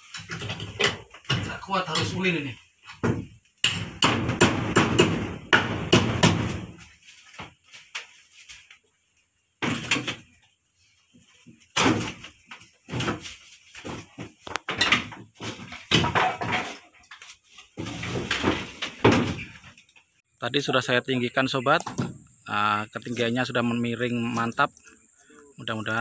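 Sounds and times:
wooden door banging and rattling: 0.1 - 2.2, 2.9 - 6.8, 9.6 - 10.3, 11.8 - 16.8, 17.8 - 19.7, 21.8 - 22.2.

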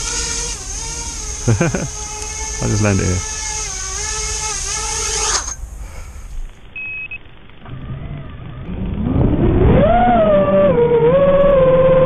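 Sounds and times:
quadcopter motors whining: 0.0 - 5.6, 7.7 - 12.0
short beep: 6.8 - 7.2.

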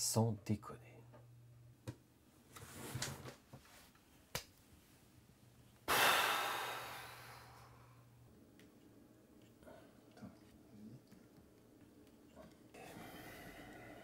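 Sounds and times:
man sighing: 5.9 - 7.8
short breath: 5.9 - 8.0.

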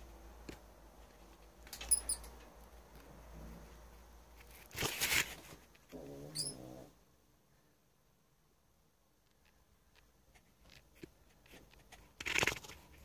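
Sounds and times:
mouse squeaking: 1.8 - 2.3, 6.0 - 6.7.

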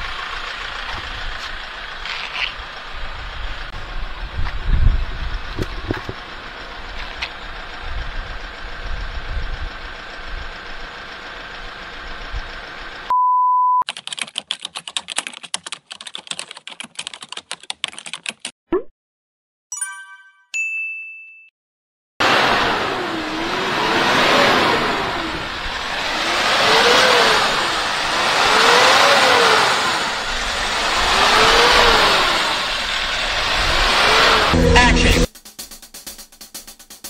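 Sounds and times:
short steady beep: 13.1 - 13.8
keyboard typing clicks: 13.9 - 18.9
chime-like tones: 19.7 - 21.5.

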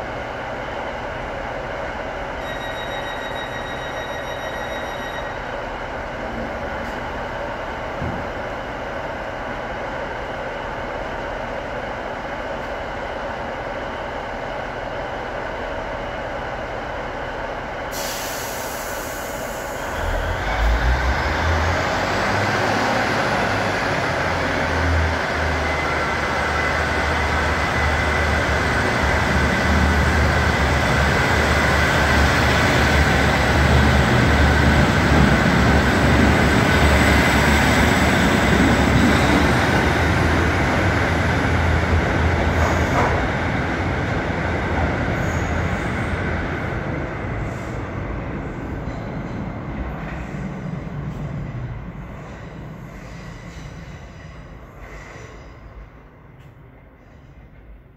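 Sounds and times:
diesel train engines idling: 5.4 - 57.2
train pulling away: 15.6 - 57.9
air brakes hissing: 17.9 - 20.0, 52.1 - 55.9.

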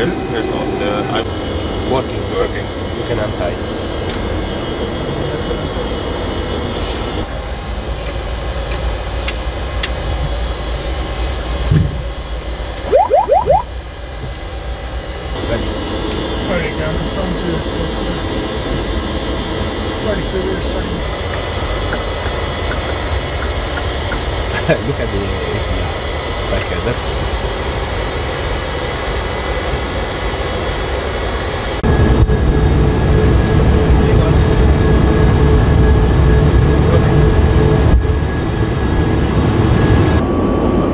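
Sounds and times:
aircraft engine and cabin rumble: 0.0 - 13.0, 14.1 - 40.9
faint steady tones: 12.8 - 13.6.

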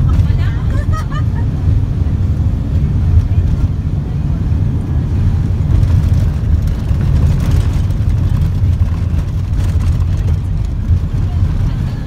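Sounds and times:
car interior engine and tyre rumble: 0.0 - 12.0.

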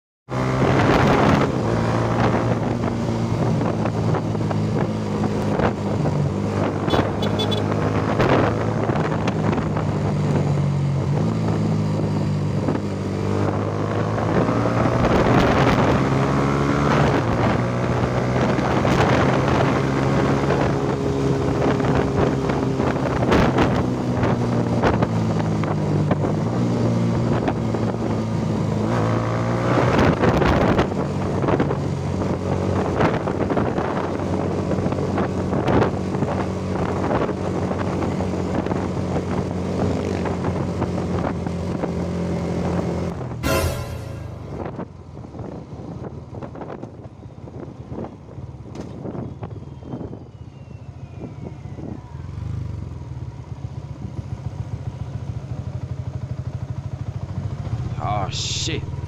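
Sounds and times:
motorcycle engine running: 2.3 - 13.0.

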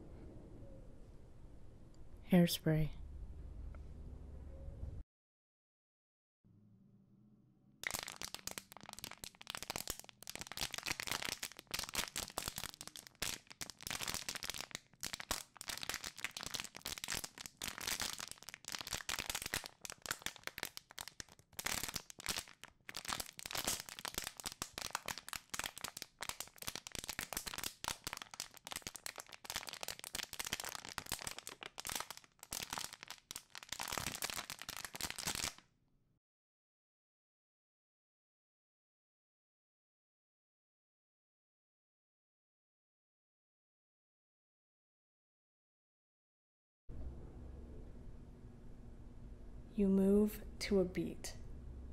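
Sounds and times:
hair crackling and rustling: 7.8 - 35.6.

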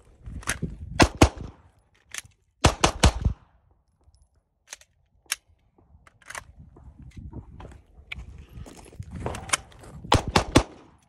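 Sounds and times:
pistol shots: 2.6 - 3.4, 10.1 - 11.0.

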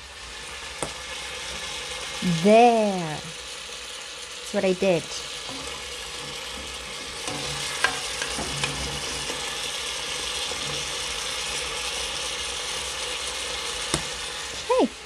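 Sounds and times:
chicken and vegetables sizzling: 0.0 - 15.0
spoon stirring in a pot: 5.4 - 9.5.

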